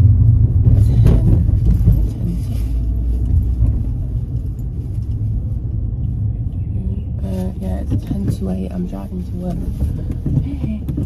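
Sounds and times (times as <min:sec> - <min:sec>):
car engine and road rumble: 0:00.0 - 0:11.0.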